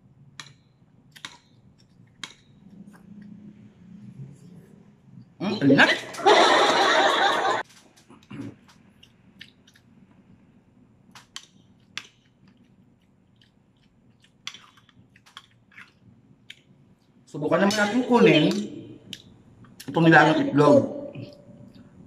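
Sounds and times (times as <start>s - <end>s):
metal spoon clicking on plates: 0.4s - 1.6s, 2.2s - 2.6s
soft chewing: 1.1s - 5.4s, 7.8s - 17.3s, 21.2s - 22.0s.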